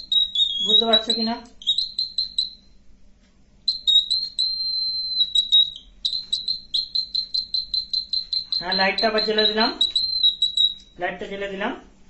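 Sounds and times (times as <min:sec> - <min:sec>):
buzzer high-pitched tone: 0:00.0 - 0:02.8, 0:03.7 - 0:10.8
rapid buzzer beeps: 0:00.0 - 0:02.8, 0:03.7 - 0:10.8.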